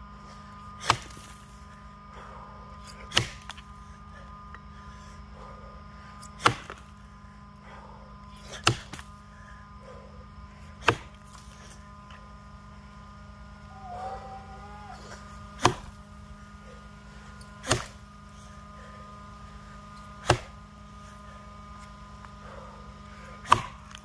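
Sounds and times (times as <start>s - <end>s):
axe chopping log: 0.8s - 1.4s, 3.1s - 3.6s, 6.4s - 6.8s, 8.4s - 9.1s, 10.8s - 11.5s, 15.6s - 16.0s, 17.6s - 18.0s, 20.2s - 20.6s, 23.4s - 24.0s.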